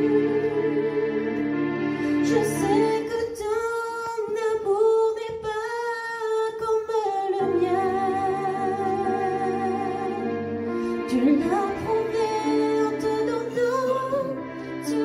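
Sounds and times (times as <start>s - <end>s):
low accompaniment chords: 0.0s - 3.6s
woman singing a hymn: 2.2s - 15.0s.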